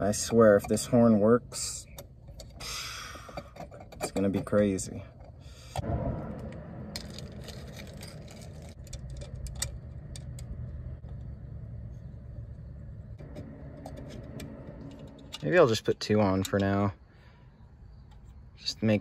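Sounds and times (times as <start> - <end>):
steady low rumble: 5.5 - 19.0.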